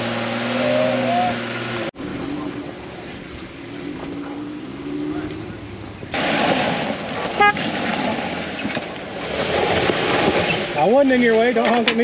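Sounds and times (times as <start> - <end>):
vehicle engine running: 0.0 - 11.9
vehicle horn toot: 7.4 - 7.7.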